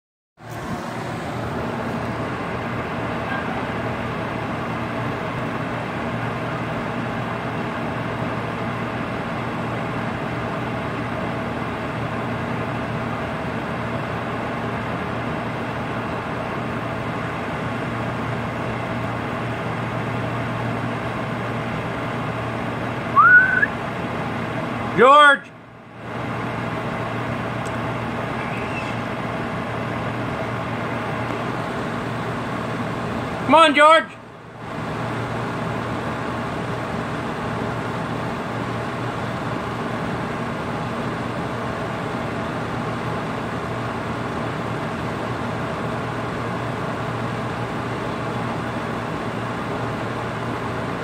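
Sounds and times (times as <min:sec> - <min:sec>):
steady mechanical hum: 0:00.4 - 0:51.0
short rising pitched sound: 0:23.1 - 0:23.7.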